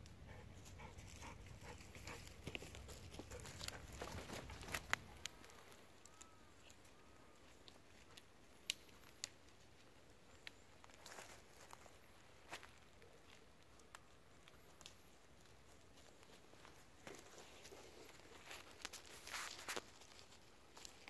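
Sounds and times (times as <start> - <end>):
footsteps crackling twigs and leaves: 0.6 - 21.0
twigs snapping: 7.6 - 9.5, 12.5 - 15.4, 18.1 - 21.0.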